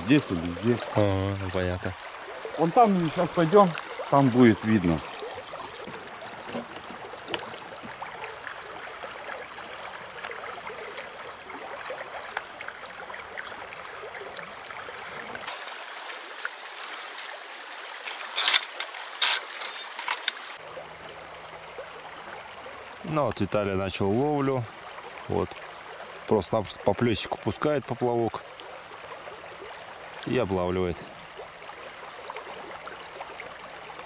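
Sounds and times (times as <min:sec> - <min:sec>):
river rushing over riffles: 0:15.0 - 0:20.6.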